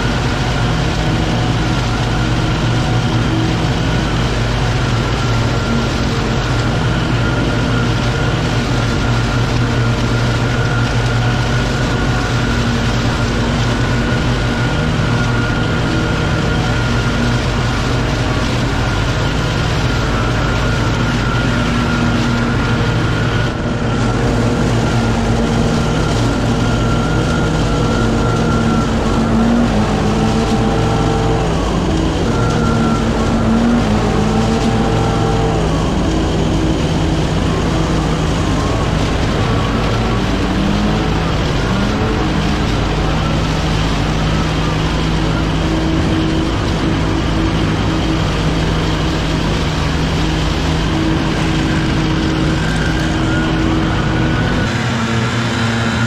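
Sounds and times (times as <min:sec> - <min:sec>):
leaf blowers revving: 0:00.0 - 0:56.0
leaf vacuum engine: 0:00.0 - 0:56.0.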